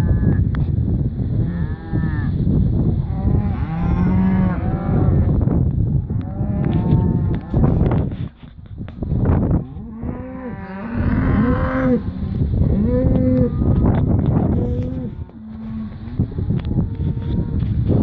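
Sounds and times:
cattle mooing: 0:03.0 - 0:05.4, 0:06.0 - 0:08.2, 0:09.5 - 0:18.0.

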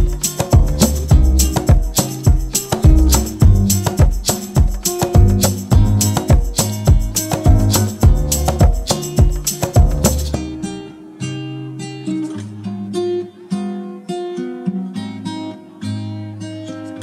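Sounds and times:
drum hits: 0:00.0 - 0:10.2
acoustic guitar picking: 0:00.0 - 0:17.0.

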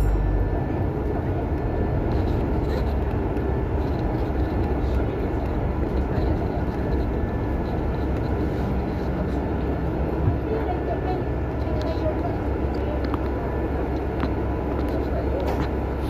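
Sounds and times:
bus engine and road noise: 0:00.0 - 0:16.0.

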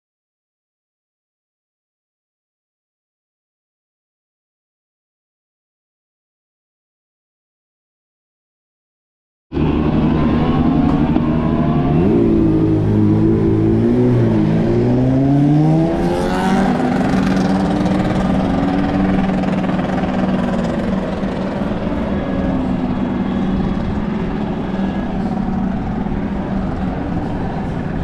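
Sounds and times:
motorcycle engine revving: 0:09.6 - 0:28.0.

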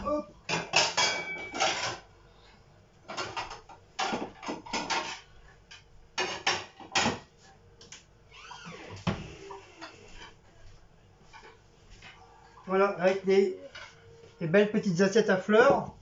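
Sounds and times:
plates and cupboards clattering: 0:00.0 - 0:02.1, 0:03.0 - 0:07.3.

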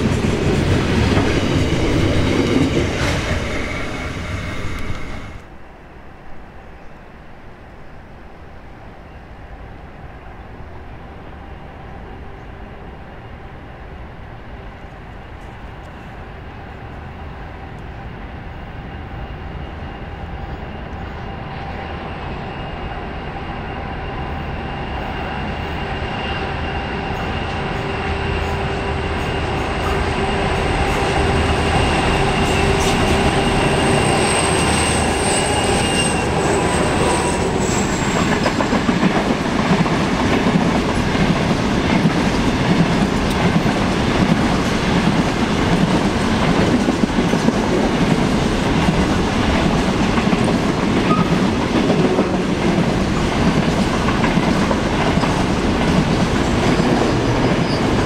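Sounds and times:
train wheels clickety-clack: 0:00.0 - 0:05.4, 0:18.8 - 0:58.0.

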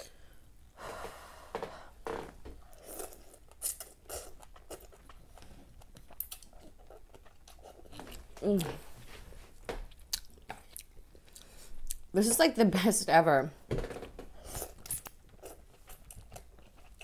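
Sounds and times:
person chewing: 0:02.6 - 0:09.0, 0:09.9 - 0:12.1, 0:14.4 - 0:17.0.

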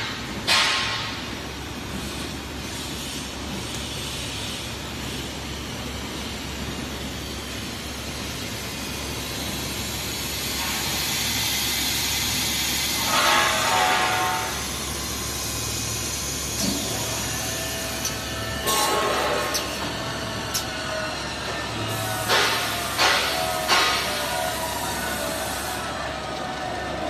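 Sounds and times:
extrusion machine hissing: 0:08.7 - 0:26.0.

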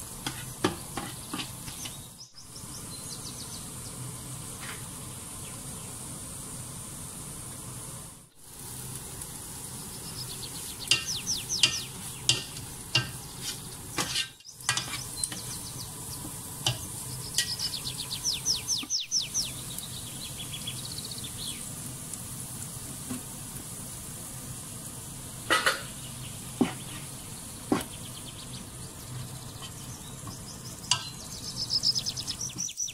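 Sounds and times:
onion and garlic sizzling in oil: 0:00.0 - 0:32.9
spatula knocking: 0:00.2 - 0:01.9, 0:10.9 - 0:15.5, 0:26.6 - 0:26.9
spatula scraping a pot: 0:00.2 - 0:02.0, 0:10.9 - 0:15.6.

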